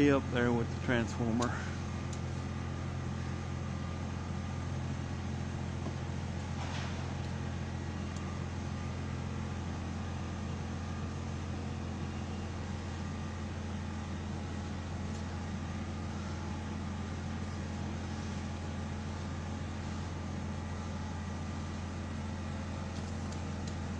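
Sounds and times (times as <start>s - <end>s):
truck engine running: 0.0s - 23.9s.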